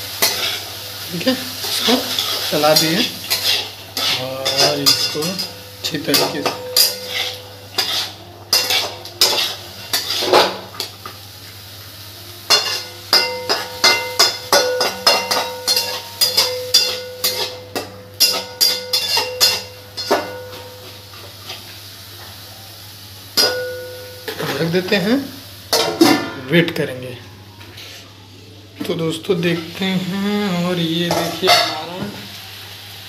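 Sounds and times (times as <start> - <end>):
metal spatula scraping a pan: 0.2 - 0.7, 1.6 - 10.9, 12.5 - 21.6.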